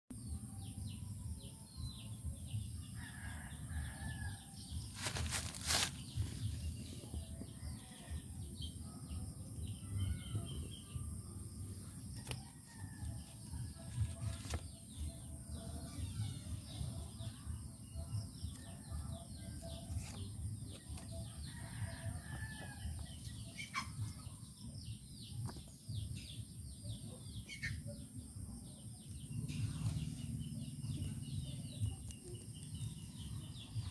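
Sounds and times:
birds chirping and calling: 0:11.9 - 0:33.9.

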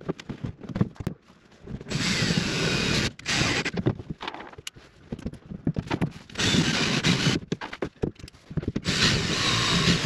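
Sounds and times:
handling knocks and clicks: 0:00.0 - 0:01.9, 0:03.7 - 0:06.4, 0:07.3 - 0:08.9
cordless drill running: 0:01.9 - 0:03.7, 0:06.4 - 0:07.4, 0:08.8 - 0:10.0.

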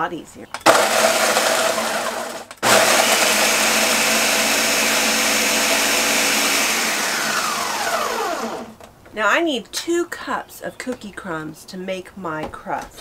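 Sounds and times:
blender grinding cookies: 0:00.7 - 0:08.8.

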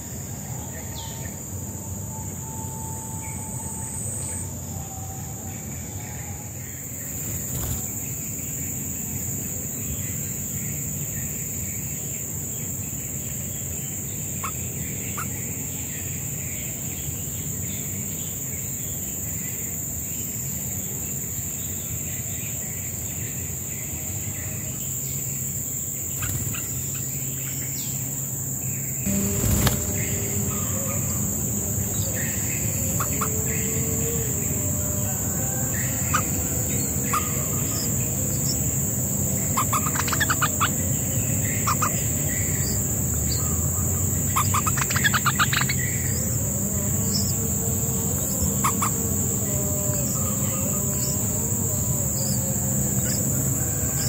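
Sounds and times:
high-pitched insect drone: 0:00.0 - 0:54.0
nestlings chattering calls: 0:07.1 - 0:08.6, 0:14.2 - 0:15.6, 0:24.8 - 0:47.4, 0:48.6 - 0:49.6.

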